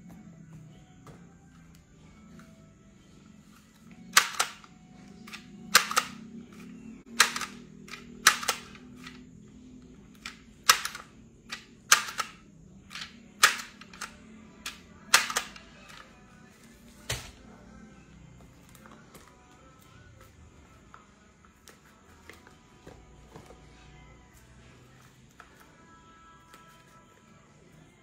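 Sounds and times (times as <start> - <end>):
price label gun clacking: 4.1 - 6.2, 7.1 - 9.2, 10.2 - 16.0.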